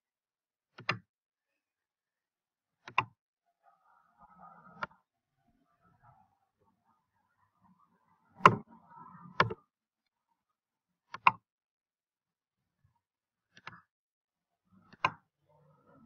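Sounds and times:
computer mouse clicking: 0.8 - 1.0, 2.8 - 3.1, 4.8 - 5.0, 9.4 - 9.6, 11.1 - 11.4, 13.6 - 13.9, 14.9 - 15.2.

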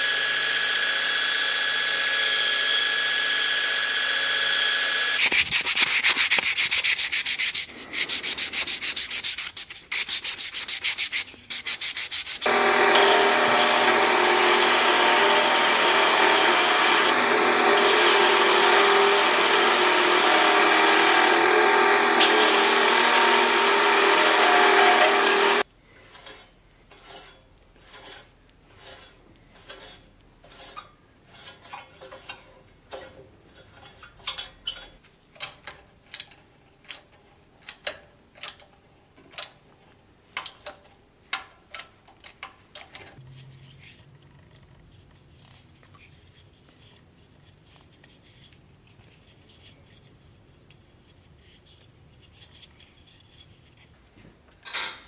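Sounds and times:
belt grinder sanding wood: 0.0 - 25.6
file rasping on metal: 5.2 - 25.6.

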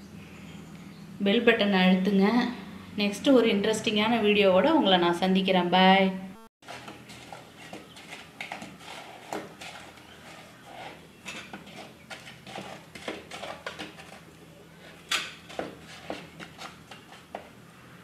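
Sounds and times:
steady low hum: 0.0 - 5.4.

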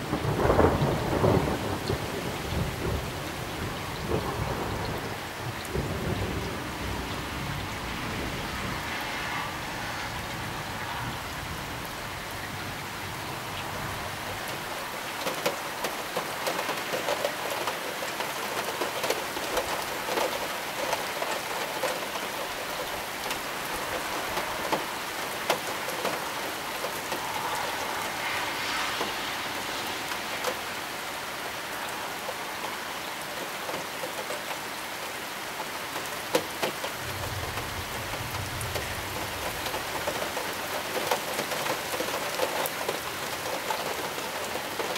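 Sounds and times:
low thunder rumble: 0.0 - 14.7, 37.0 - 40.5
heavy rain pouring: 0.0 - 44.9.

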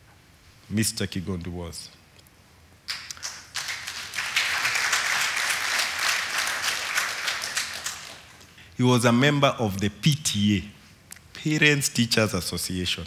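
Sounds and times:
audience applause: 2.9 - 8.3.

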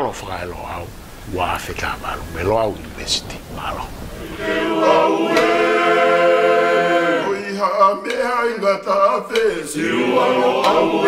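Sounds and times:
choir singing unaccompanied: 4.1 - 11.0.

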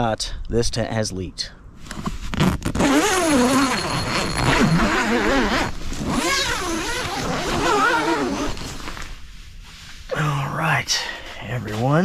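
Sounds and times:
tent zipper being pulled open: 1.9 - 9.2
zipper clicks: 2.0 - 9.0.

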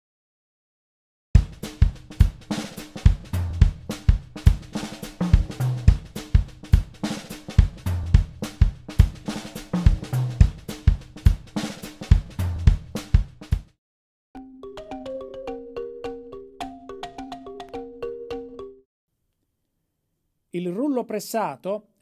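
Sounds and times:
drum kit playing groove: 1.4 - 13.8.

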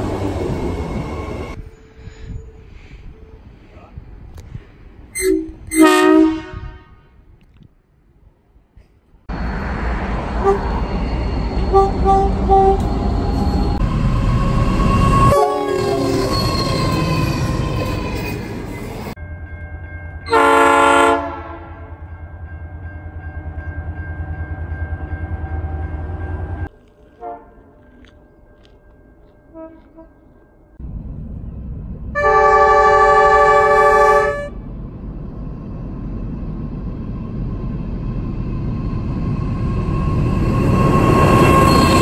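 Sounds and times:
diesel locomotive engine: 0.0 - 42.0
locomotive horn blast: 5.2 - 7.2, 10.4 - 10.8, 11.7 - 13.0, 15.2 - 16.2, 20.3 - 22.0, 27.2 - 27.7, 29.5 - 30.2, 32.2 - 34.6
train horn toots: 5.2 - 7.2, 10.4 - 10.8, 11.6 - 13.0, 15.1 - 16.6, 20.2 - 22.0, 27.2 - 27.7, 29.5 - 30.3, 32.2 - 34.6.

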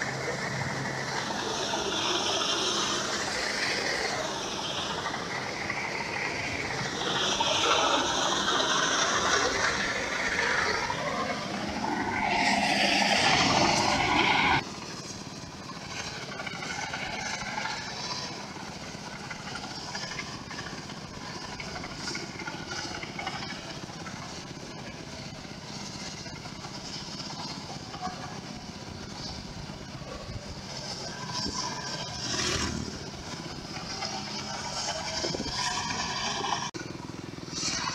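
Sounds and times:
distant combine harvester drone: 0.0 - 37.9
wind noise on moving motorcycle: 21.4 - 36.7.

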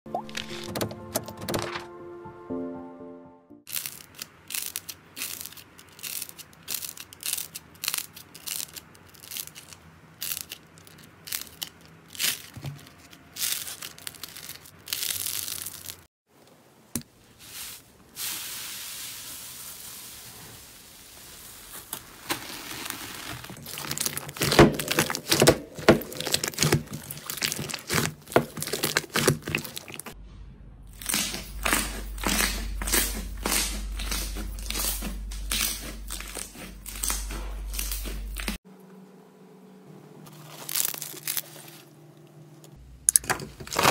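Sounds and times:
slime crinkly hiss: 3.7 - 16.1, 17.4 - 30.2, 40.3 - 41.9
slime popping and crackling: 3.7 - 16.1, 22.2 - 30.2, 31.0 - 38.6.

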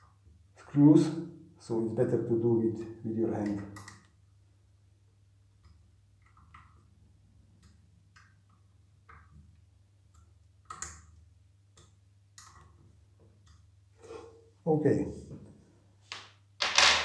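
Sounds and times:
metal clicks and taps: 3.4 - 4.2, 10.1 - 12.8.

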